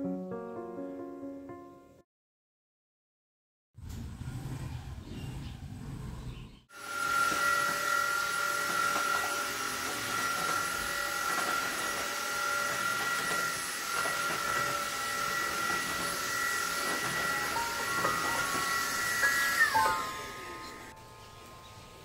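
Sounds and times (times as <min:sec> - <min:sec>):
vacuum cleaner motor whine: 0:06.7 - 0:22.0.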